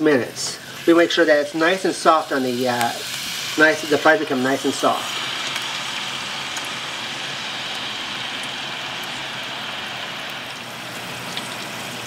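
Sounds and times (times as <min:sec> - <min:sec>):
fries sizzling in oil: 0:00.0 - 0:12.0.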